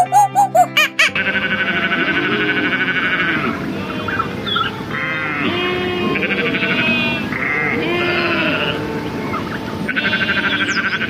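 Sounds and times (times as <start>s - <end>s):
background music: 0.0s - 11.0s
sheep bleating: 0.0s - 11.0s.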